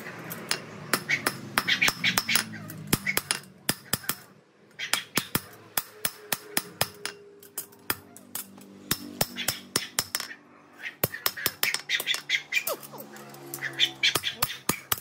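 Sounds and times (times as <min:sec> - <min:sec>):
hammer striking steel: 0:00.3 - 0:10.4.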